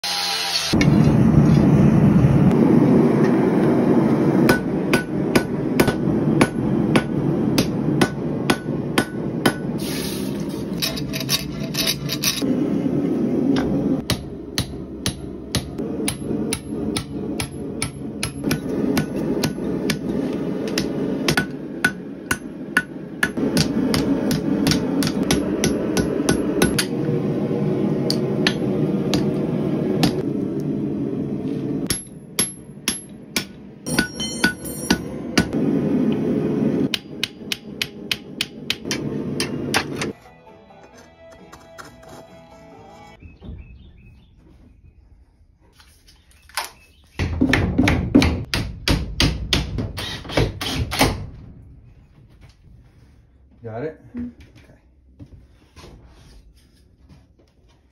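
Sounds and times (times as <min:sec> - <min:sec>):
hammer striking steel on anvil: 0:04.4 - 0:09.8, 0:14.0 - 0:27.0, 0:28.0 - 0:29.4, 0:31.9 - 0:35.6, 0:36.9 - 0:40.2.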